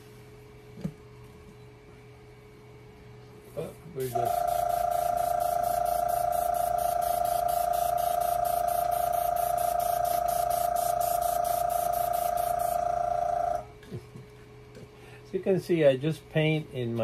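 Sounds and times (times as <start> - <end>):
airbrush spraying hiss: 4.0 - 13.2
airbrush compressor humming: 4.0 - 13.7.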